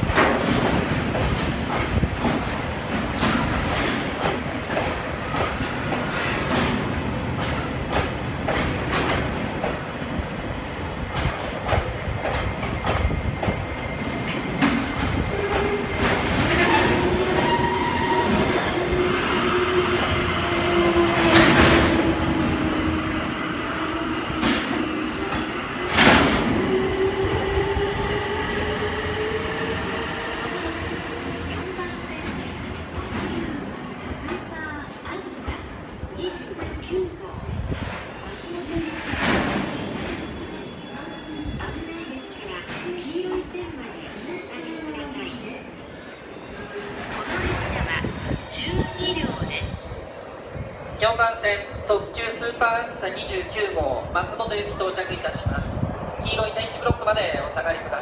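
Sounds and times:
train wheels clacking over rail joints: 0.0s - 9.9s
freight train rumble: 0.0s - 41.9s.

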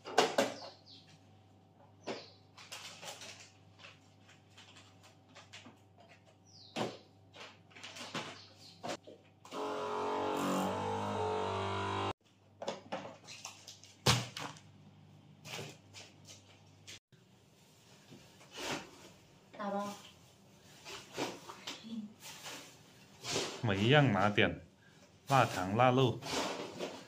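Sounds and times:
vacuum sealer pump humming: 9.5s - 12.1s.

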